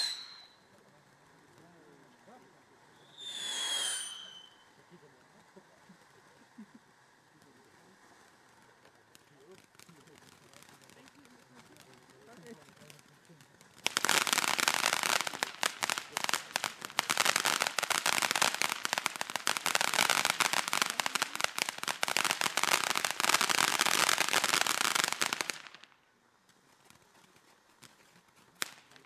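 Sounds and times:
firework fountain crackling: 0.0 - 29.0.

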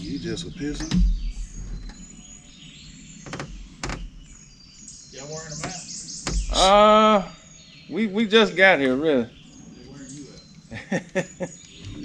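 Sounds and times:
man's drawn-out voice: 0.0 - 1.0, 5.2 - 5.8, 6.5 - 7.3
birds chirping faintly: 0.0 - 12.0
sharp knocks: 0.7 - 2.1, 3.2 - 4.3, 5.6 - 6.8.

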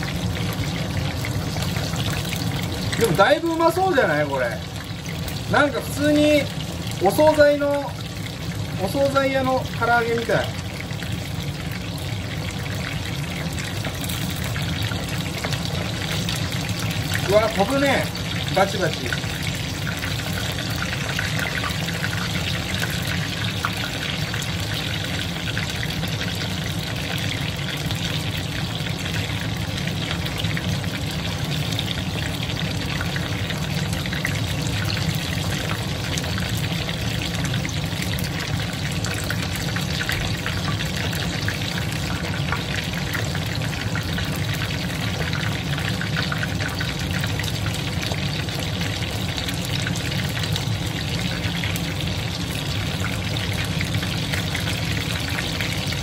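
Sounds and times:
chicken deep-frying in hot oil: 0.0 - 56.0.

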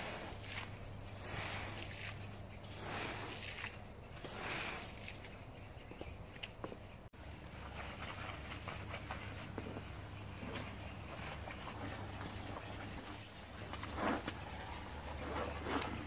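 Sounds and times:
scrubbing swish: 0.0 - 5.4
soap foam crackling and popping: 0.0 - 5.4.

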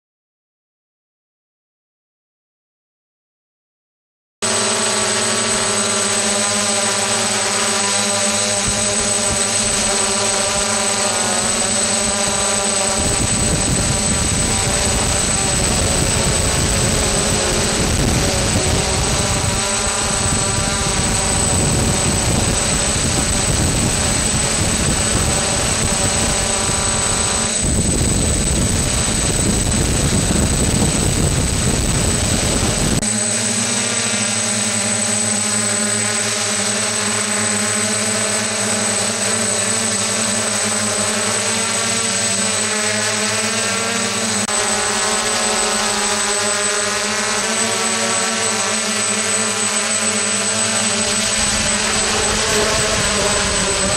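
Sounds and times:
drone propellers whirring: 4.4 - 53.9
wind buffeting microphone: 12.2 - 33.0, 51.2 - 53.9.

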